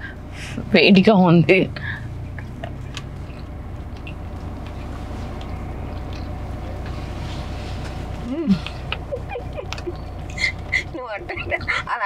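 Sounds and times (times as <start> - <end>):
car cabin hum: 0.0 - 12.0
person chewing food: 2.3 - 9.1.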